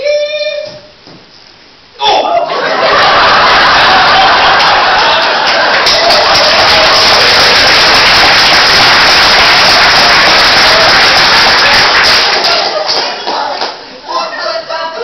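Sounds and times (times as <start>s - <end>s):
audience applauding: 2.7s - 13.8s.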